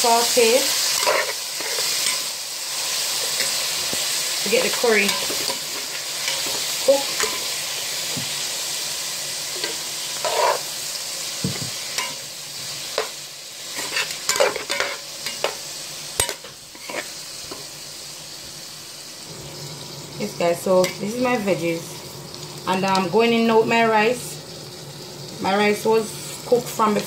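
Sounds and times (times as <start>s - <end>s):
vegetables sizzling in oil: 0.0s - 27.0s
utensil scraping a pot: 9.6s - 10.7s, 13.8s - 15.4s.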